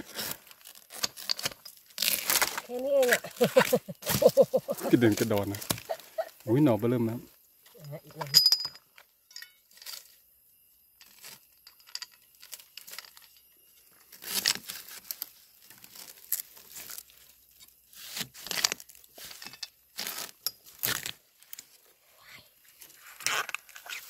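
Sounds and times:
knife cutting bamboo shoot: 0.1s - 6.0s.

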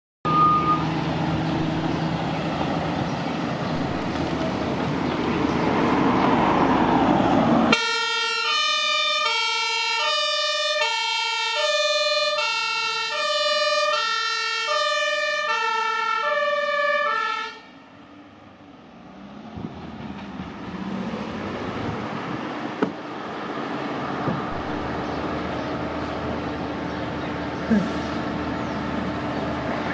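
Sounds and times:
two-tone siren horn: 7.7s - 17.8s
loud rushing noise: 19.2s - 26.4s.

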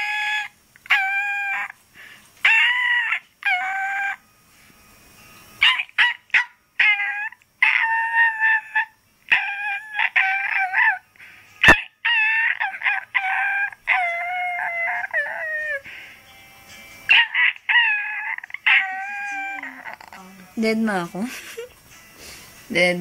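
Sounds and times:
puppy howling: 0.0s - 1.8s, 2.4s - 4.2s, 5.6s - 15.9s, 17.1s - 20.3s.

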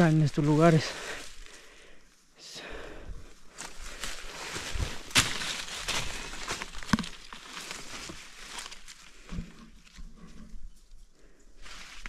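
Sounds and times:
footsteps crunching through leaves: 0.0s - 1.6s, 3.4s - 10.0s, 11.6s - 12.0s
leaves rustling: 0.0s - 2.0s, 3.2s - 12.0s
twigs snapping: 3.6s - 10.0s.

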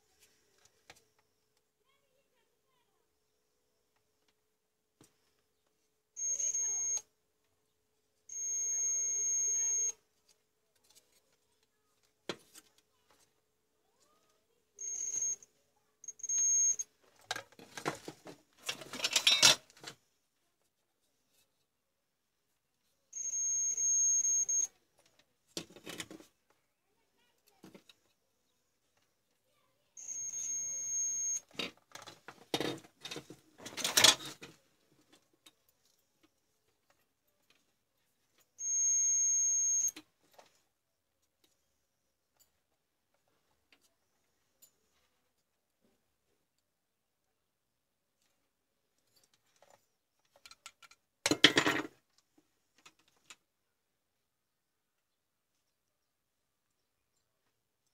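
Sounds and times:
multimeter continuity buzzer beeping: 6.2s - 7.0s, 8.3s - 9.9s, 14.8s - 15.4s, 16.1s - 16.8s, 23.2s - 24.7s, 30.0s - 31.4s, 38.6s - 40.0s
clatter and rustling of handling: 10.2s - 13.4s, 17.0s - 21.7s, 24.9s - 26.6s, 31.5s - 38.5s, 48.2s - 53.5s.

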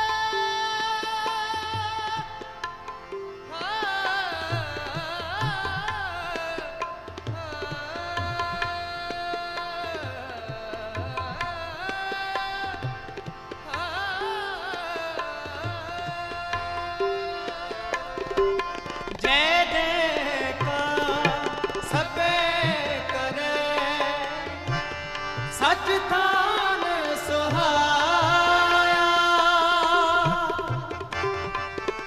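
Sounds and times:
person singing ornamented phrases: 0.0s - 2.6s, 3.5s - 18.6s, 19.2s - 31.4s
harmoniums sustained melody: 0.0s - 32.0s
tabla rhythm with bass strokes: 0.0s - 32.0s.

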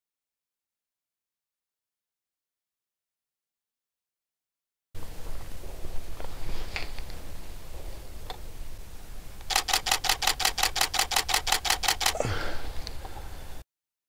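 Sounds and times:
camera shutter burst clicks: 9.5s - 12.2s.

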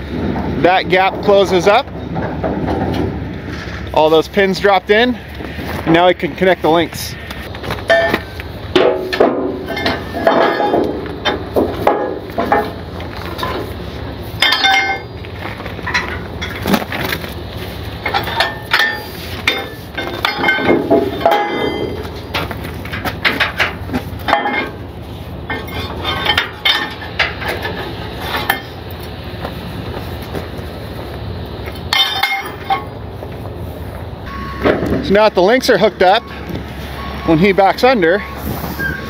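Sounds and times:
steady low rumble: 0.0s - 39.0s
metallic clinks and knocks: 7.8s - 13.7s, 14.4s - 15.2s, 18.0s - 24.8s, 31.8s - 33.0s.

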